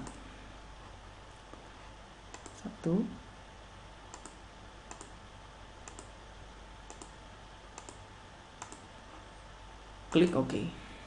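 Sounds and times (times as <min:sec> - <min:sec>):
computer mouse clicking: 0:02.3 - 0:02.6, 0:04.1 - 0:05.2, 0:05.8 - 0:06.2, 0:06.9 - 0:08.0, 0:08.6 - 0:08.9.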